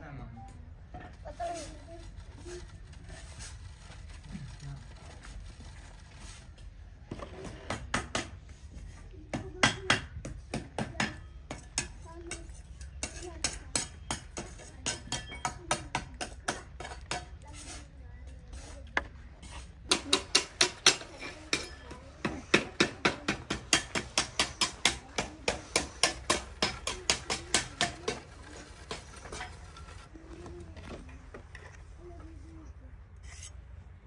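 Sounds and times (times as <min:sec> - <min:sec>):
trowel tapping wet cement: 0:09.4 - 0:17.8, 0:19.9 - 0:30.0.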